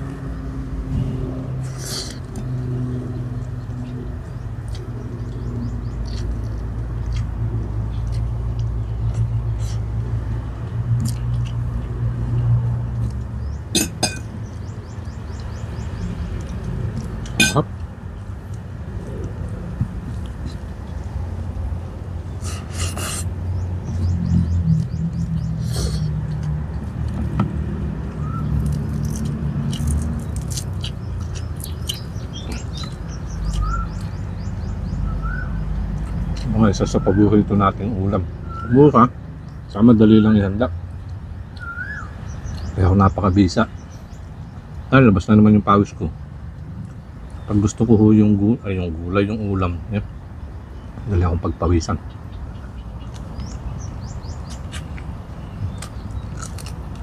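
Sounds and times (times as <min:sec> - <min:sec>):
small birds chirping: 0:02.9 - 0:10.1, 0:12.9 - 0:27.3, 0:28.1 - 0:57.0
person chewing: 0:03.4 - 0:13.3, 0:22.4 - 0:23.3, 0:28.5 - 0:34.2, 0:54.5 - 0:57.0
person eating with crisp clicks: 0:10.7 - 0:11.9, 0:28.6 - 0:34.2, 0:54.4 - 0:57.0
tableware clinking: 0:13.8 - 0:14.3, 0:17.4 - 0:17.6.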